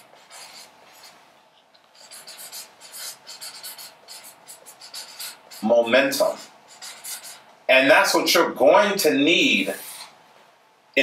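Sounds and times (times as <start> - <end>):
marker pen scratching on paper: 0.0 - 1.2, 1.9 - 7.5, 9.6 - 10.1.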